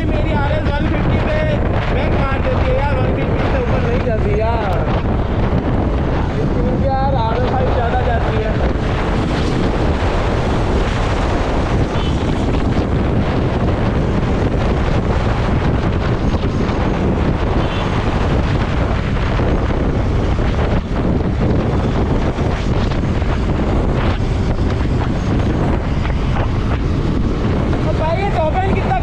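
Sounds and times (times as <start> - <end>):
wind noise on microphone: 0.0 - 29.0.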